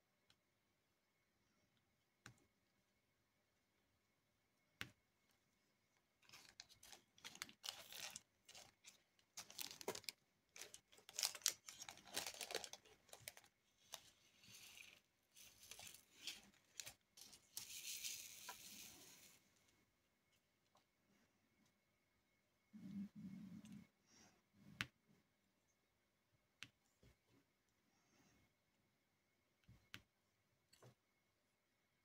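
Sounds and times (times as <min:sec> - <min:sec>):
small beads rattling in plastic tray: 0:06.3 - 0:19.4.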